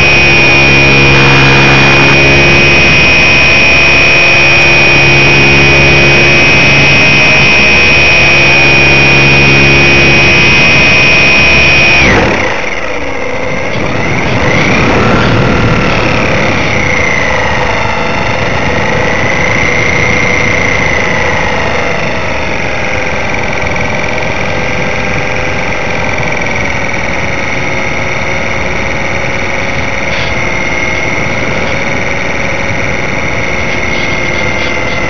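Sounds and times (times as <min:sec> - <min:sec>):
model plane motor whine: 0:00.0 - 0:35.0
wind noise: 0:13.5 - 0:27.6.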